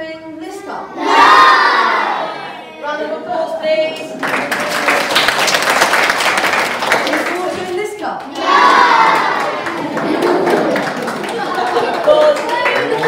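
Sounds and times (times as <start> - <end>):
children clapping: 3.9 - 13.0.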